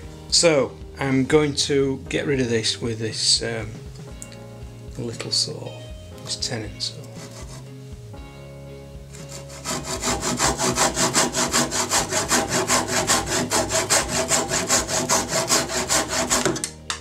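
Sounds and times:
hand saw cutting wood: 7.1s - 7.7s, 9.1s - 16.8s.

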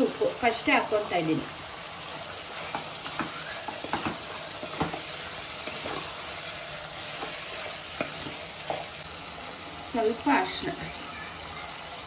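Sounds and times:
chicken sizzling in a pan: 0.0s - 12.0s
spatula scraping and knocking pan: 2.5s - 9.0s.

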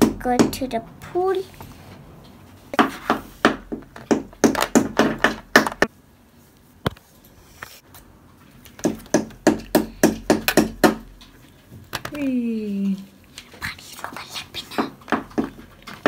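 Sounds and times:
plastic toy tapping and clicking: 3.7s - 5.9s.

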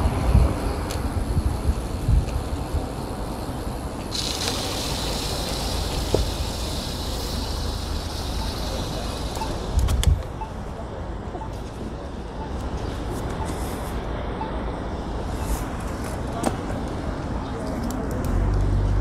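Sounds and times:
wind buffeting microphone: 0.0s - 8.4s
tyre and road noise: 0.0s - 19.0s
steady hiss: 0.4s - 10.4s.

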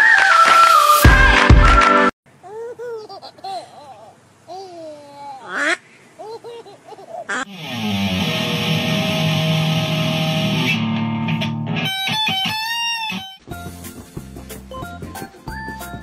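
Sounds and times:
electric guitar playing: 7.5s - 13.4s.

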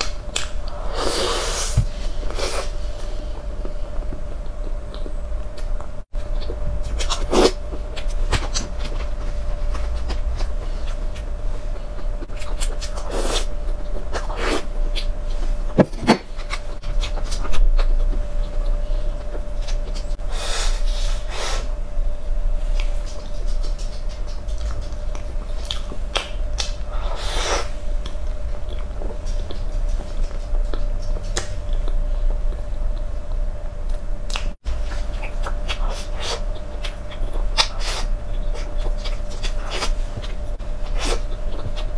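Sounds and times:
steady background hum: 0.0s - 41.9s
chewing and mouth sounds: 22.7s - 27.3s.

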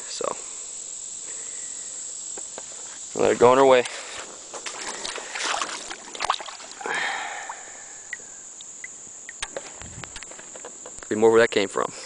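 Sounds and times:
crickets chirping: 0.0s - 12.0s
water splashing: 4.6s - 7.9s.

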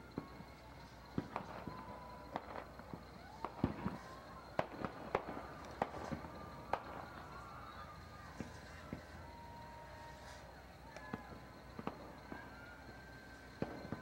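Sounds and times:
fireworks banging and popping: 0.0s - 14.0s.

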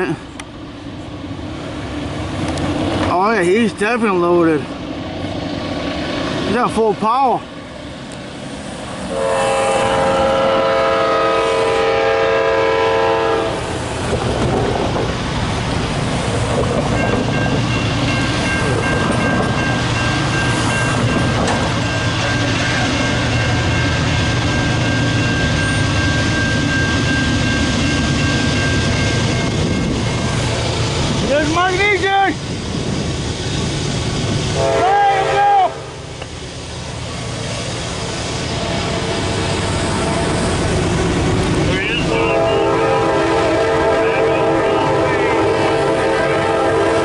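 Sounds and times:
diesel locomotives rumbling: 0.0s - 47.0s
locomotive horn chord: 9.1s - 13.6s, 34.6s - 36.0s, 42.0s - 47.0s
crossing warning bell ringing: 16.8s - 30.6s.

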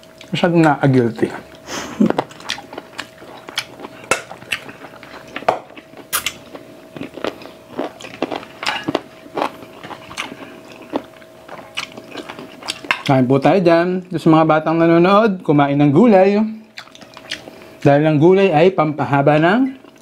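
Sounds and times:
faint steady hum: 0.0s - 20.0s
chewing and mouth smacks: 1.4s - 13.2s, 16.7s - 17.9s
lip and teeth clicks: 6.1s - 6.4s, 16.8s - 17.5s.

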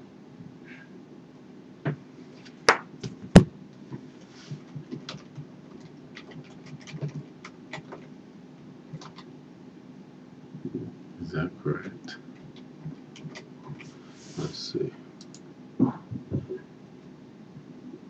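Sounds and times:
faint steady hum: 0.0s - 18.0s
computer keyboard keystrokes: 4.8s - 8.1s, 8.9s - 9.3s, 12.4s - 13.9s, 15.2s - 15.4s.

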